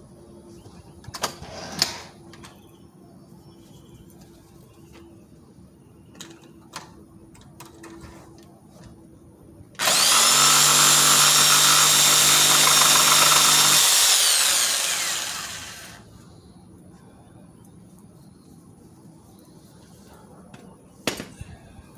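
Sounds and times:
jigsaw cutting wood: 9.8 - 16.0
motor winding down: 9.8 - 16.1.

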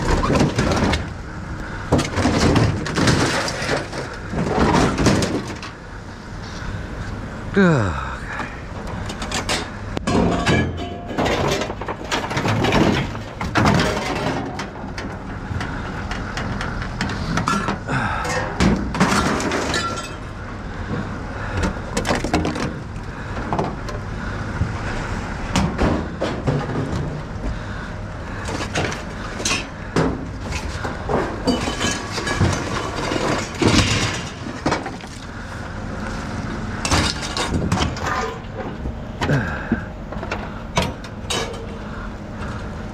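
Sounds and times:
scrap metal clanking and crashing: 0.0 - 1.1, 1.9 - 5.8, 8.9 - 20.4, 25.5 - 27.3, 28.4 - 35.2, 36.8 - 39.5, 40.2 - 41.8
steady low hum: 0.0 - 42.9.

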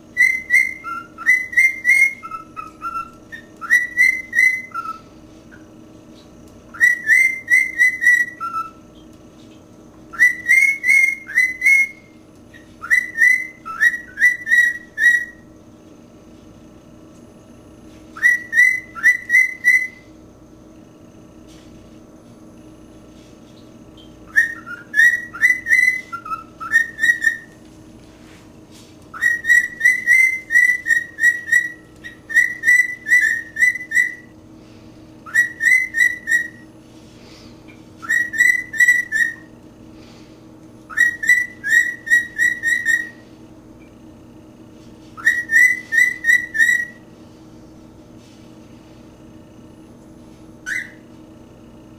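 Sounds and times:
cockatiel whistling: 0.2 - 5.0, 6.7 - 8.8, 10.1 - 15.5, 18.2 - 20.1, 24.3 - 27.6, 29.1 - 34.3, 35.2 - 36.7, 38.0 - 39.5, 40.9 - 43.2, 45.2 - 47.0, 50.6 - 51.0.

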